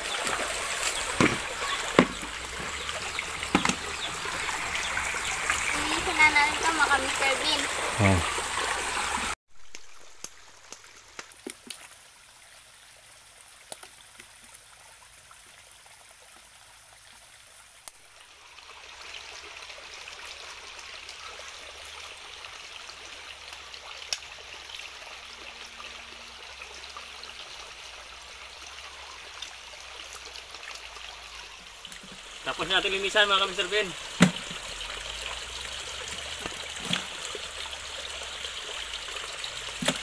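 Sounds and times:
stream rushing over rocks: 0:00.0 - 0:12.1, 0:31.7 - 0:40.0.

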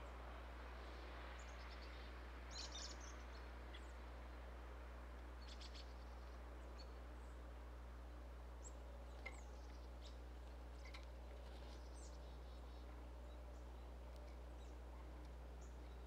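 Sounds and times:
steady low hum: 0:00.0 - 0:16.0
faint bird chirps: 0:00.8 - 0:04.0, 0:05.4 - 0:07.4, 0:08.6 - 0:16.0.

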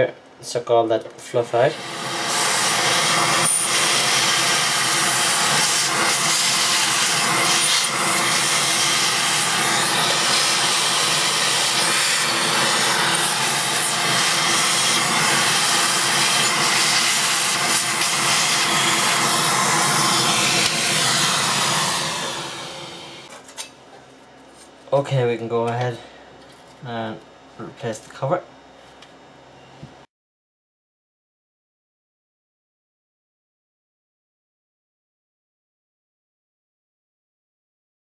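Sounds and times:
vacuum cleaner running: 0:01.5 - 0:23.3
nozzle sucking dust: 0:01.7 - 0:23.3.

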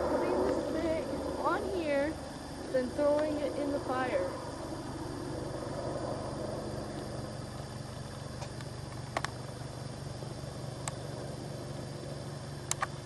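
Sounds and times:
helicopter flying overhead: 0:00.0 - 0:13.0
sharp clicks: 0:08.4 - 0:09.4, 0:12.7 - 0:13.0.

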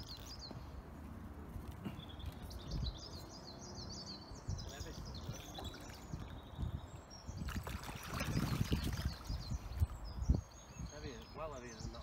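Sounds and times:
fish thrashing and splashing water: 0:07.5 - 0:09.3.

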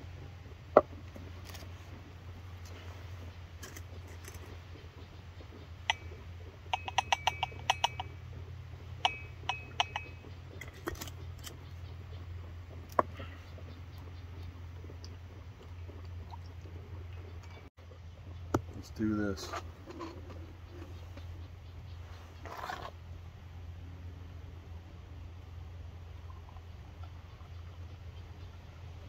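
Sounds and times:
camp stove burner hum: 0:00.0 - 0:29.0
jars being handled: 0:05.8 - 0:08.1, 0:09.0 - 0:11.6, 0:18.6 - 0:21.2
ceramic mug clinking: 0:06.8 - 0:08.1, 0:09.0 - 0:10.2.

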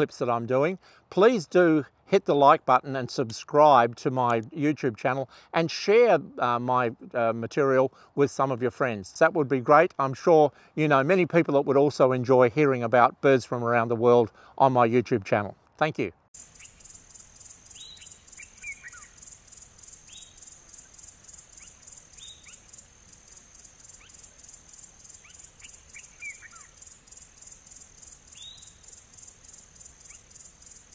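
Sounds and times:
pulsing insect chorus: 0:16.4 - 0:30.9
downward-sliding bird calls: 0:23.8 - 0:27.0.

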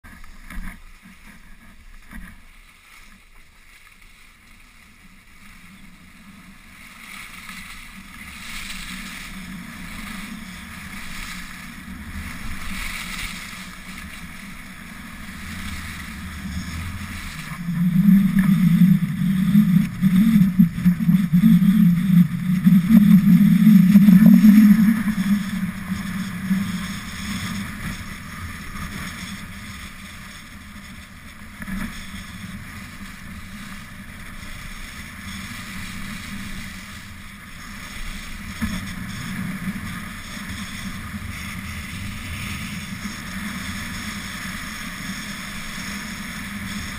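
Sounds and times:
skis hissing over snow: 0:00.8 - 0:46.9
wind buffeting microphone: 0:08.0 - 0:34.2.

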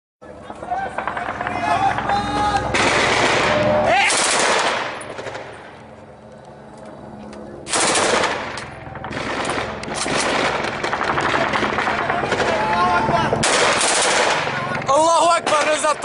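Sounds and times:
automatic gunfire: 0:02.7 - 0:05.5, 0:07.7 - 0:14.7.

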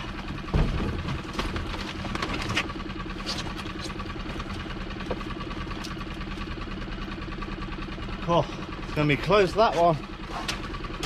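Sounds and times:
boat engine idling: 0:00.0 - 0:11.0.

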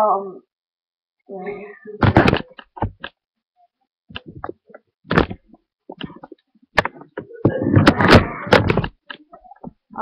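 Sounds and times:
camera handling knocks and rustles: 0:04.2 - 0:09.2.

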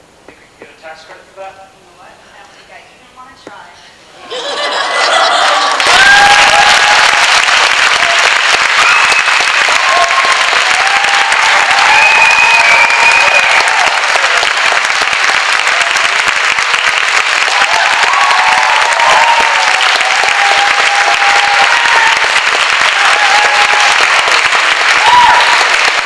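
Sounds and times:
audience applauding: 0:04.5 - 0:26.0.

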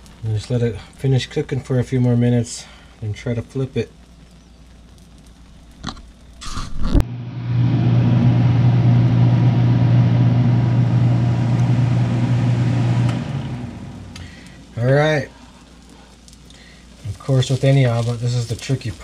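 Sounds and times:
electric fan motor hum: 0:06.4 - 0:19.0.

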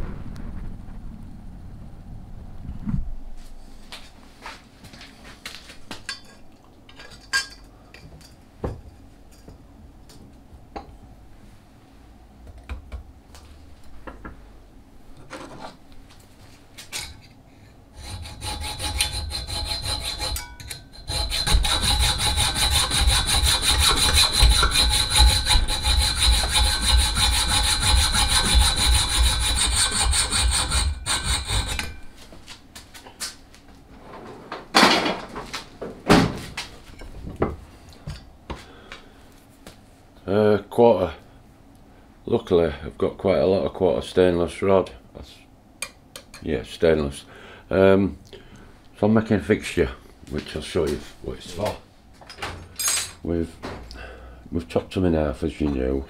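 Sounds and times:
saw cutting metal with high whine: 0:18.0 - 0:32.0.

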